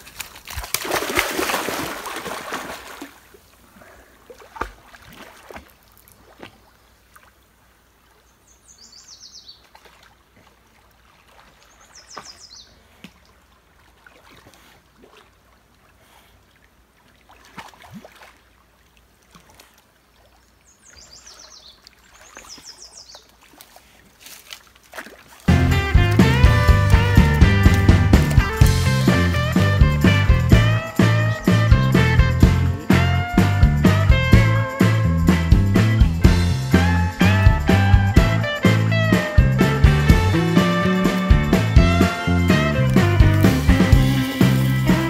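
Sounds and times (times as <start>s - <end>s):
dog paddling in water: 0.0s - 7.5s, 9.5s - 29.1s
loud splash into river: 0.1s - 3.4s, 24.9s - 45.0s
music: 25.5s - 45.0s.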